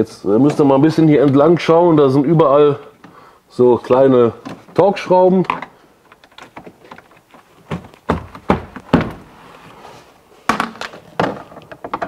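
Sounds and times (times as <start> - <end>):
knocks on car trim panels: 7.7 - 9.3.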